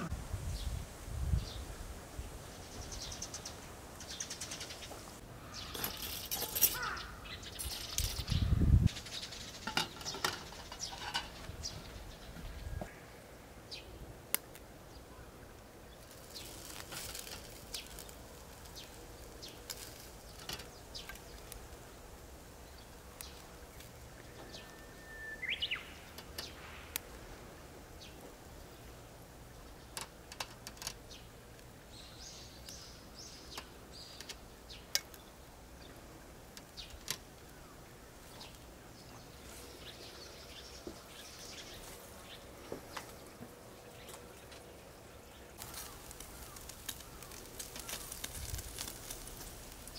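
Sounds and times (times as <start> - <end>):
high sizzling hiss: 0.0 - 43.4, 45.3 - 49.9
bird chirp: 2.5 - 14.0, 22.6 - 27.0
meat crackling on a grill: 2.6 - 12.3, 14.1 - 49.9.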